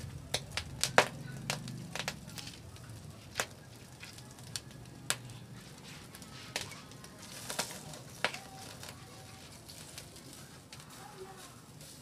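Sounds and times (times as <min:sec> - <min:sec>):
fire clicks and pops: 0:00.0 - 0:12.0.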